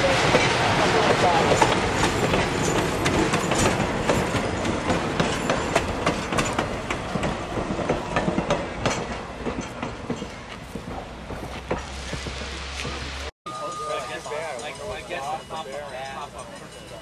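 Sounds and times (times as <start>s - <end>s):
train wheels clattering over rail joints: 0.0s - 13.0s.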